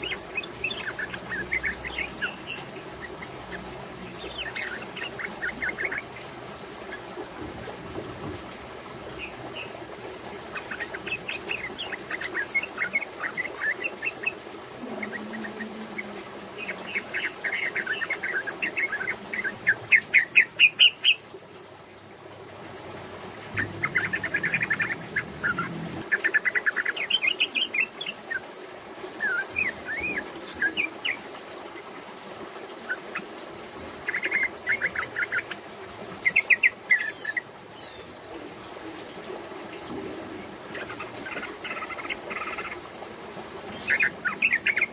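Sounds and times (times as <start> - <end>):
bird singing rapid chirps: 23.4 - 28.2.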